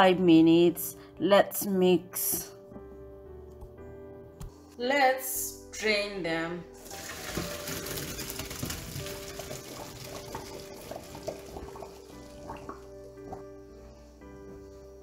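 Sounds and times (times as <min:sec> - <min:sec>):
water draining into a colander: 0:06.8 - 0:13.0.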